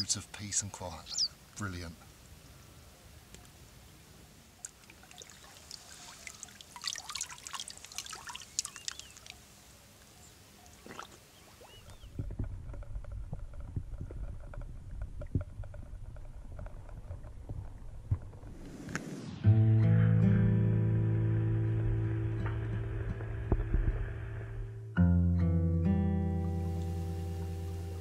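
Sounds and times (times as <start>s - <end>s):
water splashing and trickling: 4.6s - 12.5s.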